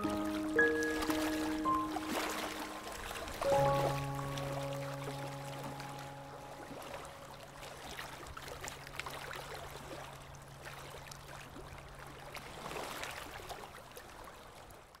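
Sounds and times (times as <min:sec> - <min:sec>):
low music tone: 0:00.0 - 0:07.9
sea waves washing onto beach: 0:00.0 - 0:14.4.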